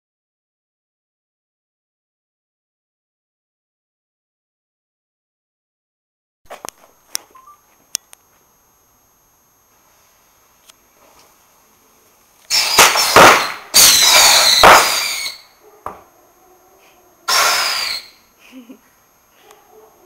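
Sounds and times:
firework cracks: 12.5 - 15.4, 17.3 - 18.1
firework hissing bursts: 12.5 - 15.5, 17.3 - 18.2
falling whistle: 12.5 - 15.6, 17.3 - 18.3.

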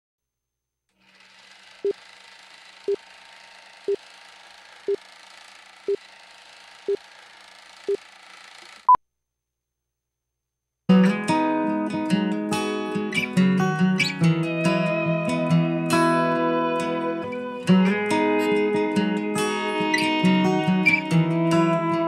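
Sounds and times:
acoustic guitar strumming: 10.9 - 22.0.

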